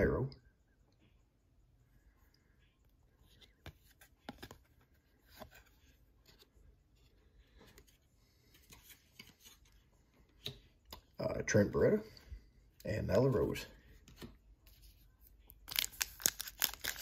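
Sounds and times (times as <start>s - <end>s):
trading cards clicking and rustling: 15.7s - 17.0s.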